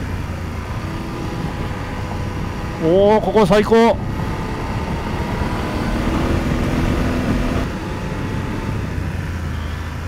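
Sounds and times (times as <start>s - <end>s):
motorcycle engine running: 0.0s - 10.0s
wind rushing: 3.8s - 9.2s.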